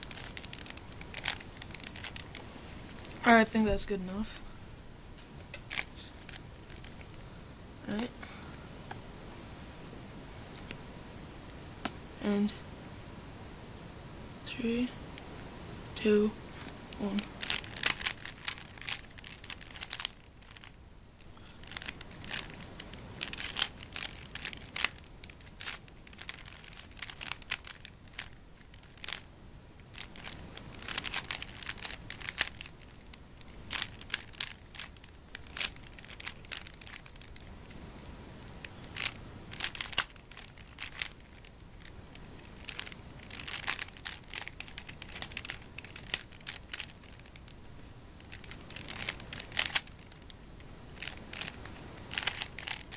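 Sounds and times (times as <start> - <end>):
plastic puzzle cube clicking: 0.0 - 3.2, 17.2 - 47.6, 48.2 - 50.4, 51.0 - 52.9.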